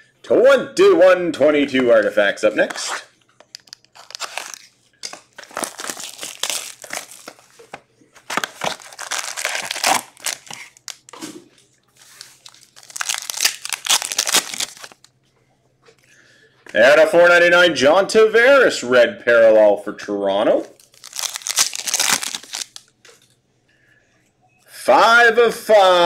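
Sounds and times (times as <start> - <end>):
wrapper crinkling and tearing: 3.5 - 7.6, 8.2 - 11.2, 12.0 - 15.1, 20.7 - 22.9.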